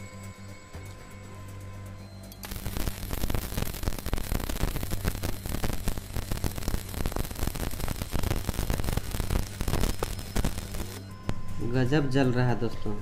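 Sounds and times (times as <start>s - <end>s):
welder low hum: 0.0s - 12.1s
welding arc crackling: 2.4s - 11.0s.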